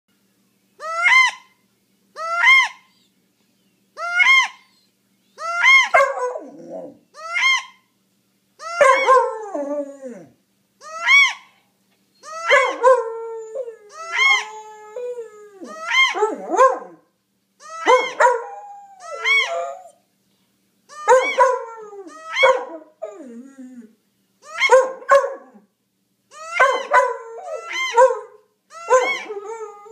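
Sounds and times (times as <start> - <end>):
duck call squealing: 0.8 - 1.5, 2.2 - 2.9, 4.0 - 4.8, 5.4 - 6.0, 7.2 - 7.8, 10.8 - 11.6
puppy howling: 0.8 - 1.5, 2.2 - 3.1, 4.0 - 7.8, 8.6 - 11.6, 12.2 - 17.0, 17.6 - 20.0, 20.9 - 25.7, 26.3 - 29.9.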